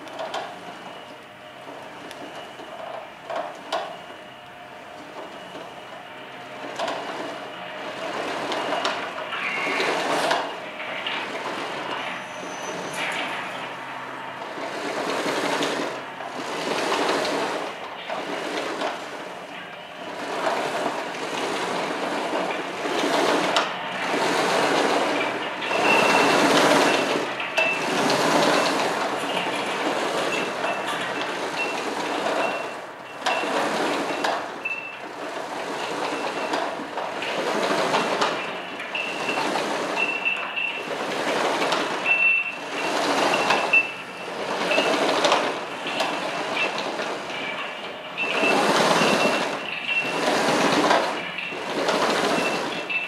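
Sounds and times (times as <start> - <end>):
rumbling rattling noise: 5.0 - 53.0
faint high squeal: 12.1 - 13.3.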